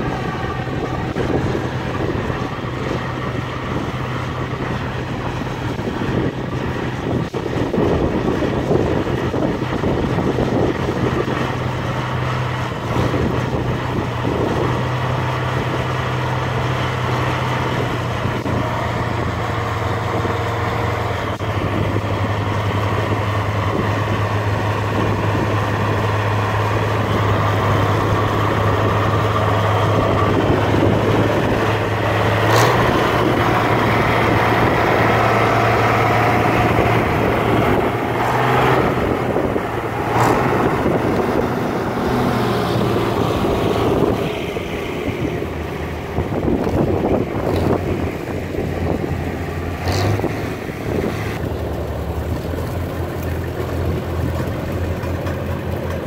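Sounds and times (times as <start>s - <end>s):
tractor engine droning: 0.0s - 56.0s.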